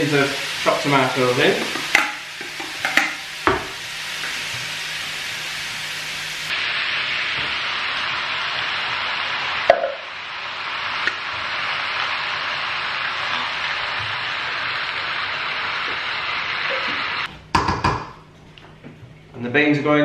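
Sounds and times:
food sizzling in a wok: 0:00.0 - 0:17.3.

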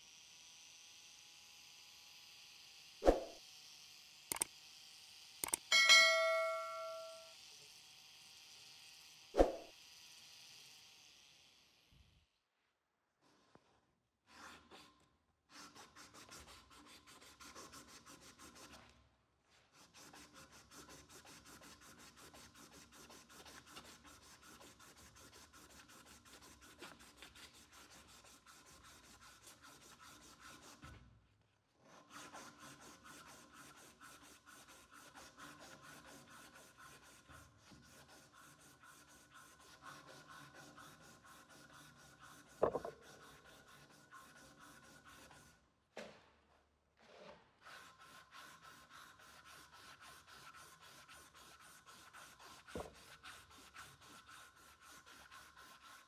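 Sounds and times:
sharp click: 0:05.4 - 0:07.2
sanding strip rasping on wood: 0:14.3 - 0:18.8, 0:19.7 - 0:31.0, 0:31.9 - 0:45.6, 0:47.6 - 0:56.0.

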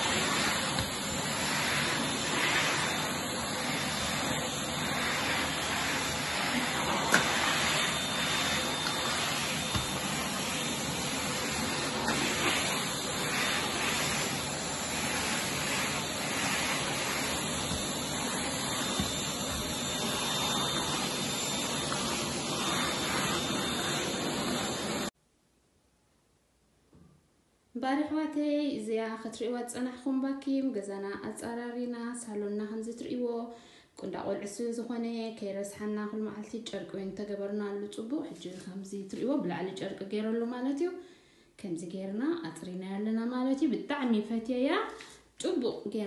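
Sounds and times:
vacuum cleaner running: 0:00.0 - 0:25.2.

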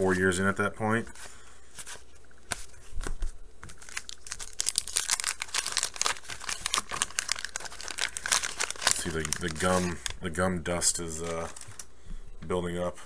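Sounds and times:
waxed paper wrapper crinkling: 0:01.1 - 0:11.9
wrapper clicks: 0:03.6 - 0:10.2.

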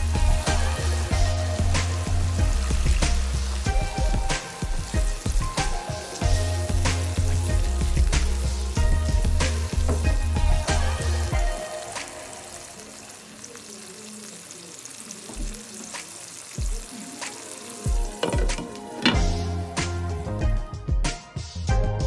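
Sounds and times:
music with deep beat: 0:00.0 - 0:12.1, 0:16.6 - 0:22.0
stew sizzling in a wok: 0:00.0 - 0:20.8.

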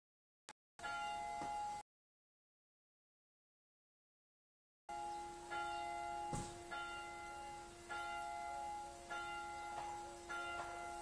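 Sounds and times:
church bell ringing: 0:00.8 - 0:01.8, 0:04.9 - 0:11.0
sharp knock: 0:06.3 - 0:06.6.

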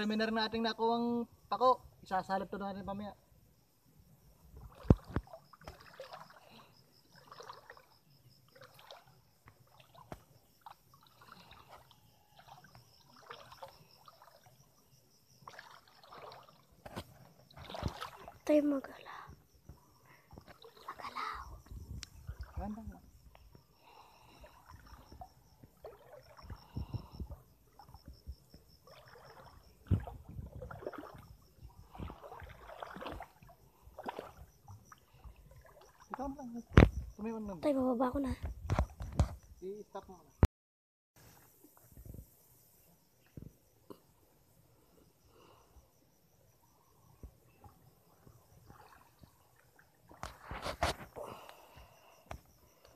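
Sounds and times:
water sloshing: 0:04.4 - 0:39.5, 0:47.3 - 0:52.9.

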